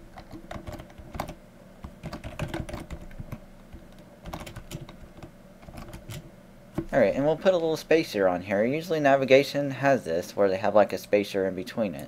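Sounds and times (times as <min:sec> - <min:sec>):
computer keyboard typing: 0:00.0 - 0:06.2.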